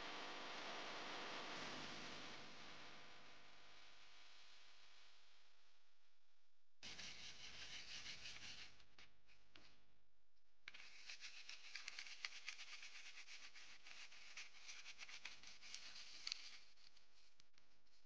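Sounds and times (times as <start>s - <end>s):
brush scrubbing wet parts: 10.8s - 16.4s.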